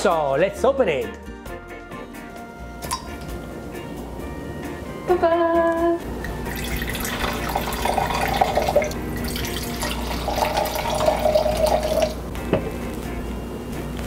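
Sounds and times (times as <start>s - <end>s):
wine pouring into glass: 6.2s - 12.2s.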